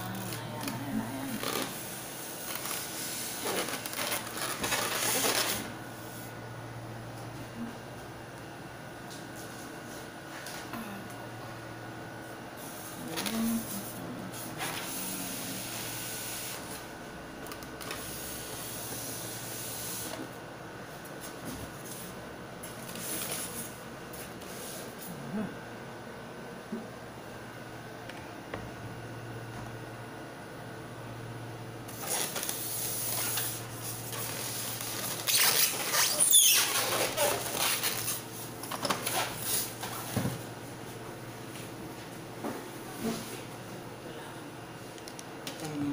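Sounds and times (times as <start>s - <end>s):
printer motor whirring: 0.0s - 6.4s
plastic and cardboard rustling: 2.4s - 5.8s, 31.9s - 40.4s.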